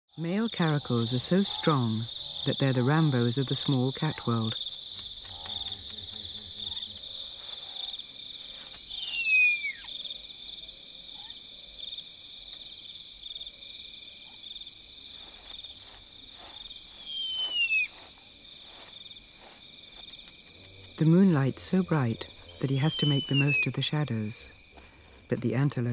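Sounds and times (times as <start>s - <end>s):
crickets trilling: 0.1s - 25.9s
loud whistled call falling in pitch: 8.9s - 9.9s, 17.0s - 17.9s, 22.9s - 23.8s.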